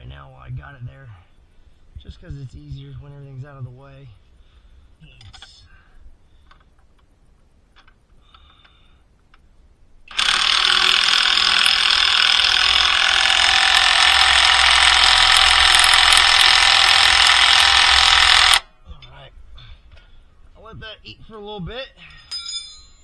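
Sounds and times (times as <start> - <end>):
impact wrench hammering bolt: 10.1 - 18.6.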